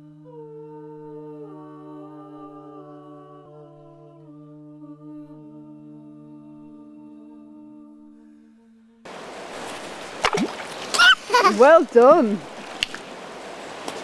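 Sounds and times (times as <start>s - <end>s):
voices humming: 9.1s - 14.0s.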